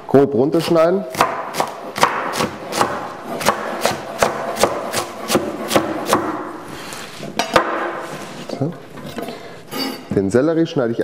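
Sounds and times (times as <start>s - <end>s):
knife chopping on wooden board: 1.1s - 6.6s, 7.4s - 8.0s.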